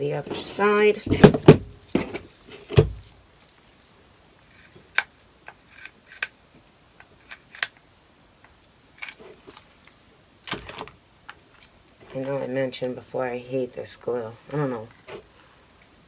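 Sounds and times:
light clicks and rustles: 0.4 - 6.3.

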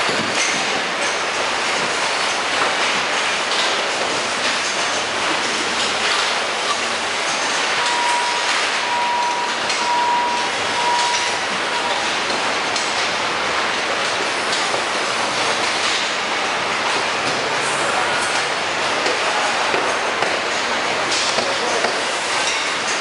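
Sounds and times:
conveyor machinery running: 0.0 - 23.0
large fans running: 0.0 - 23.0
high beeping tone: 7.8 - 12.0.

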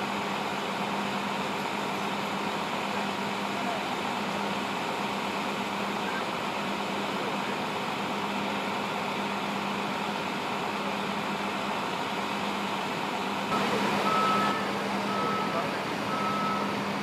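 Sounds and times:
idling vehicles and machinery hum: 0.0 - 17.0
truck reversing beeper: 13.5 - 17.0.

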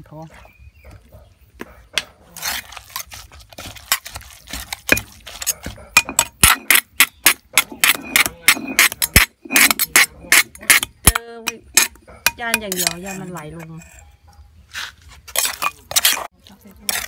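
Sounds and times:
wet scraping: 2.2 - 11.2, 14.7 - 17.0
spoon knocking on stone mortar: 3.9 - 13.8.

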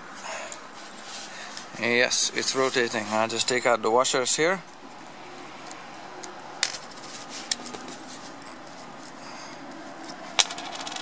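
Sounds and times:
light metallic clicks of washers: 7.5 - 11.0.

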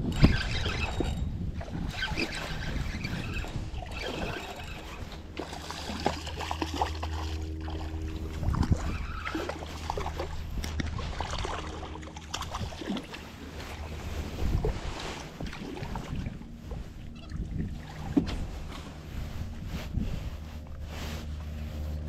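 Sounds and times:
steady low hum: 0.0 - 22.0
water splashing and sloshing: 0.0 - 22.0.

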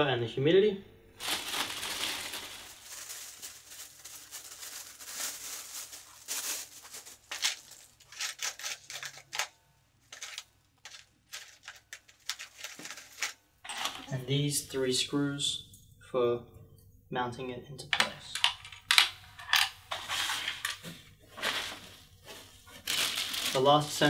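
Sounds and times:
plastic wrapping crinkling: 1.2 - 14.1, 20.0 - 24.0.

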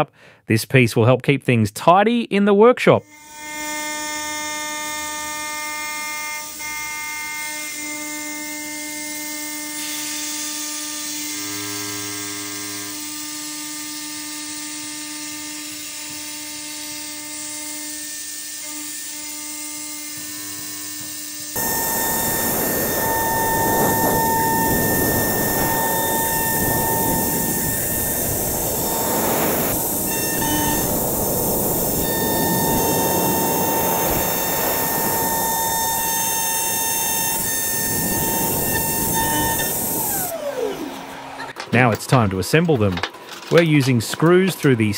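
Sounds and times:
router spindle whining: 3.1 - 44.9
end mill cutting metal hiss: 21.6 - 41.0.

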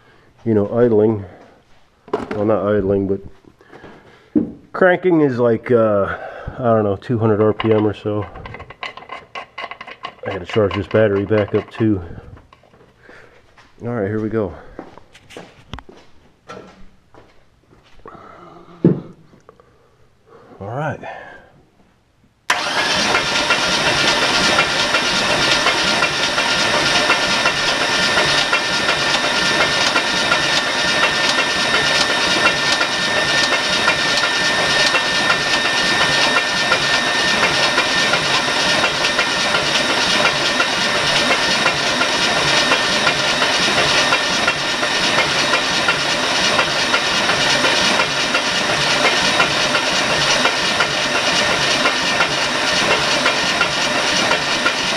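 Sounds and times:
truck engine cranking on starter: 6.5 - 12.6, 22.5 - 54.9.

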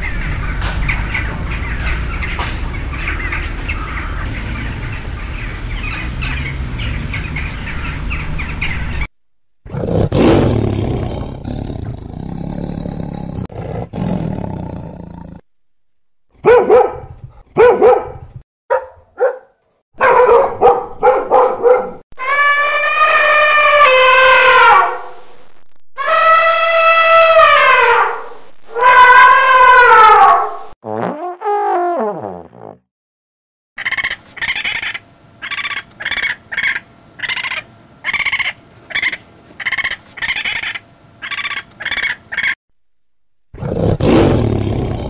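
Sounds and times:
loud barking calls: 0.0 - 9.1, 16.4 - 25.0, 33.8 - 42.6
tigers roaring and growling: 9.7 - 15.4, 43.6 - 45.0
elephant trumpeting: 22.2 - 25.0.

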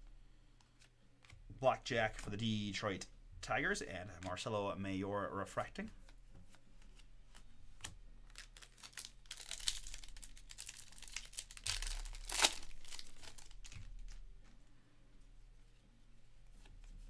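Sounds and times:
foil wrapper tearing and crinkling: 8.3 - 14.2.

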